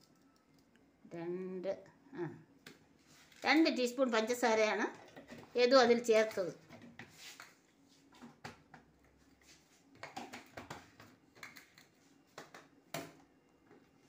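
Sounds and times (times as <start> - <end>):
kitchen items clicking and knocking: 10.0 - 13.2.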